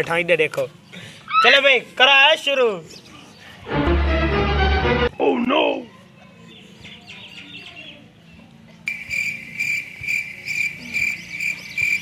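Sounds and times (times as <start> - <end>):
cricket chirping: 8.9 - 12.0.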